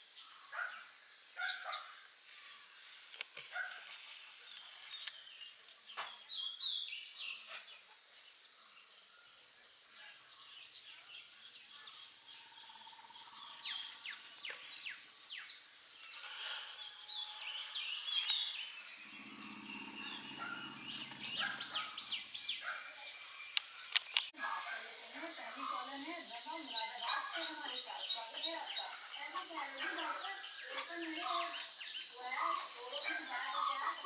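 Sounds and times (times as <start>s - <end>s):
insects droning: 0.0s - 34.0s
bird chirps: 17.2s - 22.8s
low hum: 19.0s - 22.2s.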